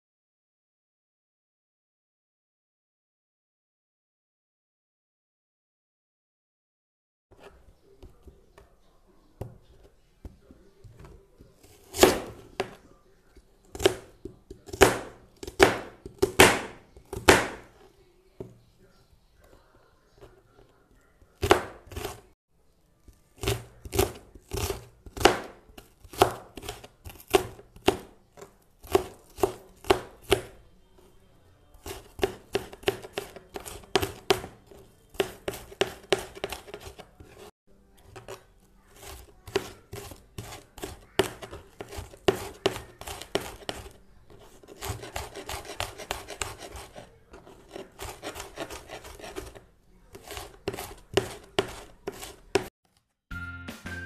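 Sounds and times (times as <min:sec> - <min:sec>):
knife chopping on cutting board: 0:10.2 - 0:12.8, 0:13.7 - 0:17.8, 0:21.4 - 0:22.3, 0:23.4 - 0:30.6, 0:31.8 - 0:37.5, 0:38.1 - 0:52.7.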